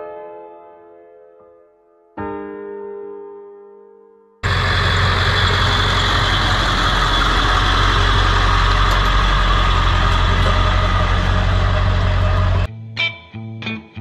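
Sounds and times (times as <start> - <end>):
diesel truck engine running: 4.4 - 12.7.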